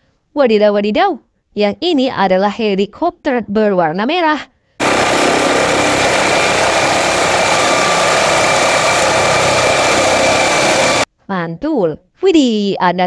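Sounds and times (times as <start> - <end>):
helicopter turbine whine and rotor: 4.8 - 11.1.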